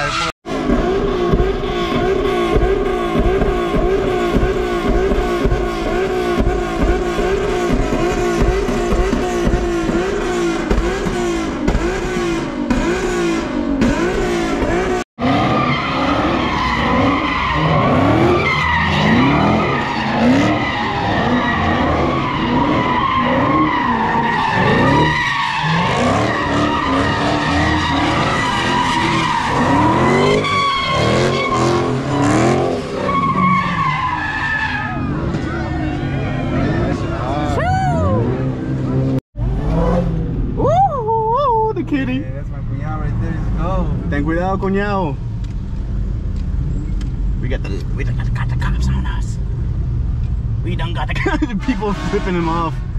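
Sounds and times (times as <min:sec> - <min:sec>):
car engine revving: 0:00.0 - 0:40.7
tires squealing: 0:00.0 - 0:45.2, 0:50.3 - 0:52.9.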